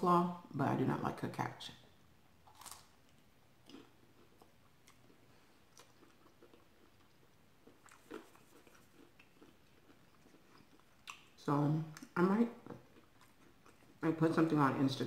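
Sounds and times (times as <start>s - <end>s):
chewing crunchy food: 2.5s - 14.0s.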